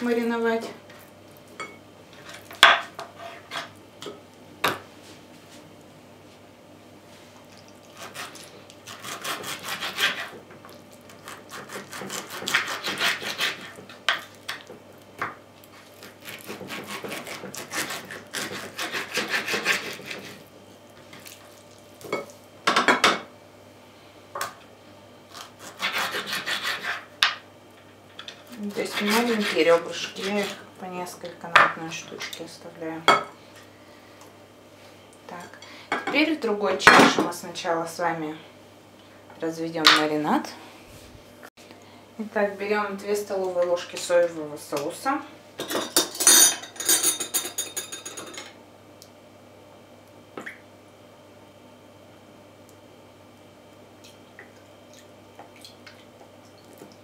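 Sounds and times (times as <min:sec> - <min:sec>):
knife sawing through ribs: 0:08.0 - 0:10.4, 0:11.1 - 0:13.8, 0:15.8 - 0:20.4, 0:25.3 - 0:27.1, 0:28.6 - 0:30.6.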